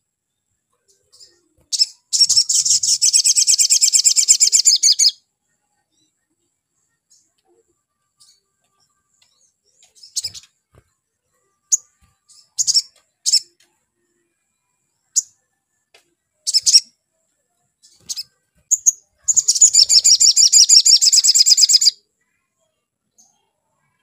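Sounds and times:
bird chirping and trilling: 1.1s - 5.2s, 9.8s - 10.5s, 11.6s - 13.5s, 16.4s - 16.9s, 17.8s - 22.0s.

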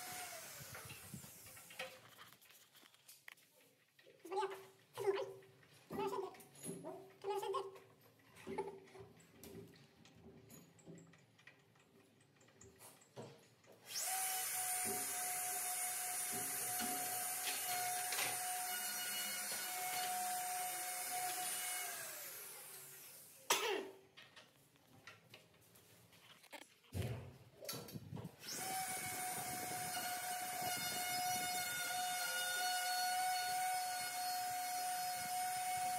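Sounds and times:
electric motor whining: 28.4s - 35.9s.

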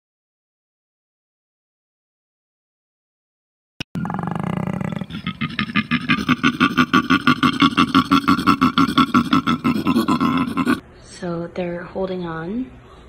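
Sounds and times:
koala bellowing: 4.0s - 10.8s.

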